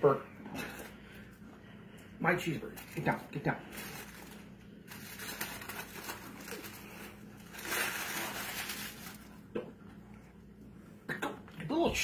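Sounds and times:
paper wrapper crinkling: 2.6 - 9.5.

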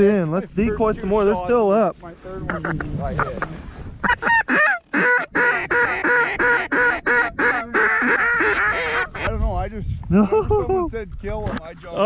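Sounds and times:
duck call quacks: 2.5 - 9.3.

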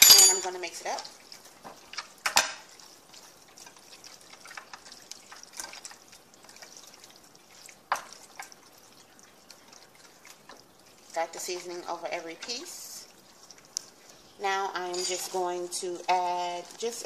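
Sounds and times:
wet squishing of meat: 0.8 - 14.9, 15.5 - 17.0.

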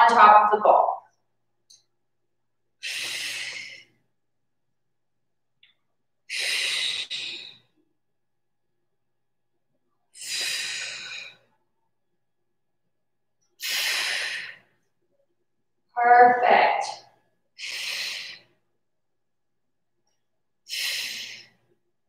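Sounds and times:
woman breathing hard: 2.8 - 4.0, 6.3 - 7.7, 10.2 - 11.6, 13.6 - 14.8, 17.6 - 18.6, 20.7 - 21.6.

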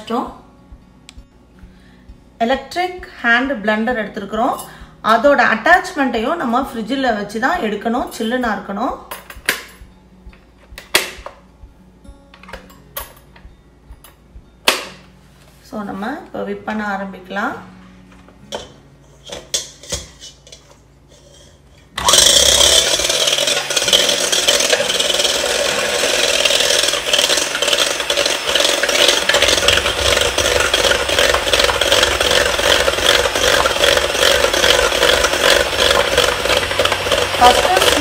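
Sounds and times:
electric hand mixer whisking cream: 22.0 - 38.0.

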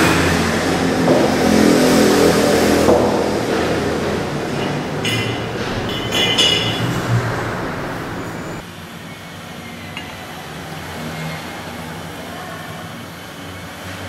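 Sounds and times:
ceramic mugs clinking: 5.0 - 7.0.

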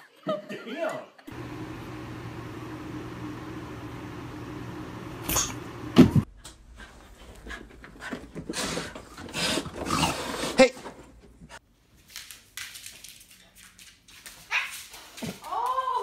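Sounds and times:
small pump humming: 1.3 - 6.2.

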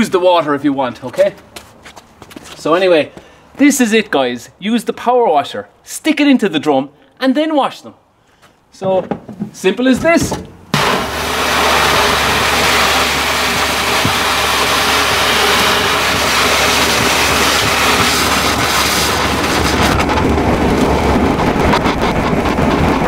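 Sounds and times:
pressure washer spray hissing: 10.8 - 19.9
pump humming: 10.8 - 20.5.

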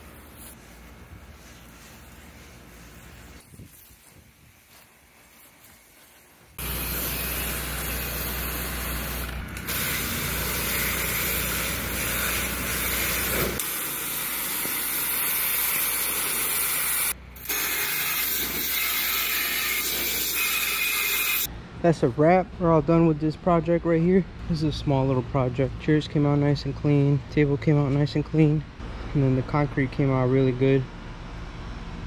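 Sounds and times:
pressure washer spraying water: 0.0 - 21.5.

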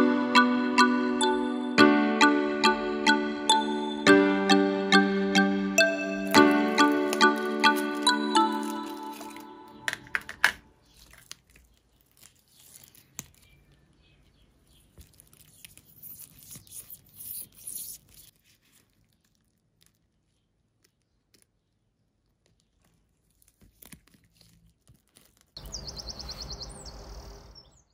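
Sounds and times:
plastic sheet crinkling: 6.2 - 25.6
chirping: 25.6 - 27.9.

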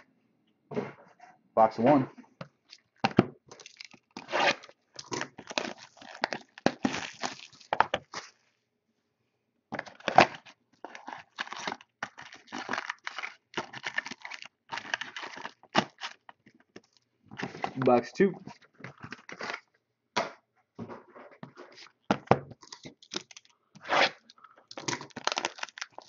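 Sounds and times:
plastic wrap tearing and crinkling: 2.7 - 8.4, 9.8 - 17.7, 22.6 - 26.0.

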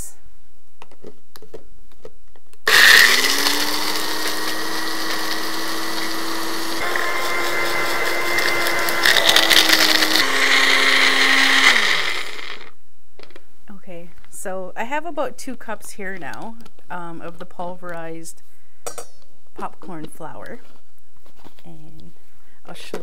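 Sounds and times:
blender grinding popcorn: 2.7 - 12.7.

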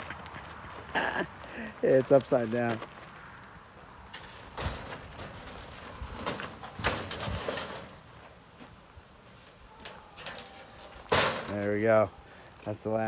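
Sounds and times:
metal crate knocks and rattles: 4.2 - 8.0, 9.9 - 11.8.

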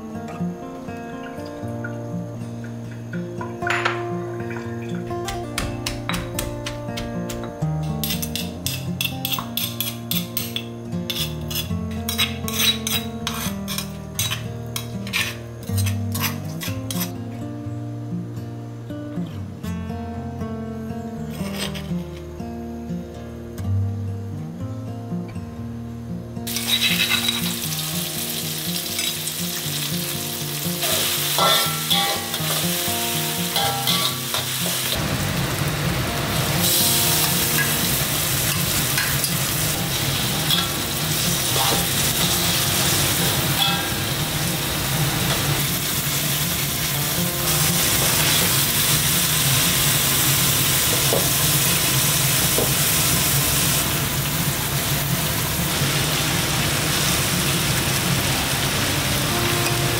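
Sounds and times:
metal spatula scraping wok: 11.1 - 17.2, 21.3 - 22.2, 26.5 - 27.7, 30.8 - 35.0, 37.1 - 44.2
food sizzling in hot oil: 26.5 - 59.9.

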